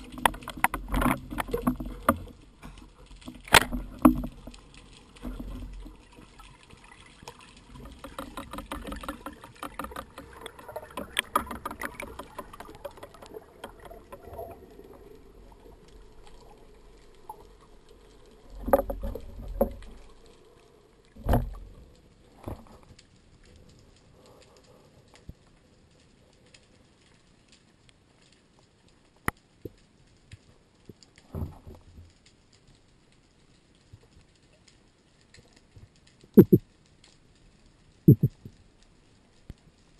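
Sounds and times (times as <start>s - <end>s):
heavy thumps of water: 0.0s - 15.3s, 21.2s - 22.8s
underwater crackling clicks and bubbling: 0.0s - 39.9s.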